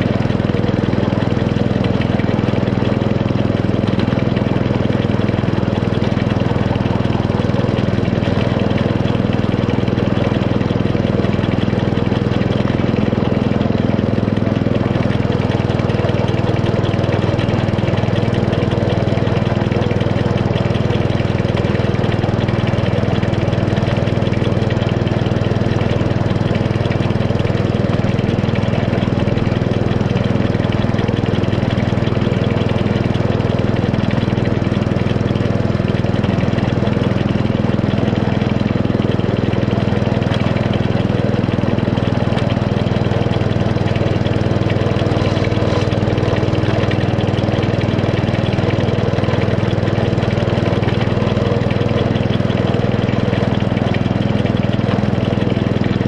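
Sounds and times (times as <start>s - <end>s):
small petrol engine running: 0.0s - 56.0s.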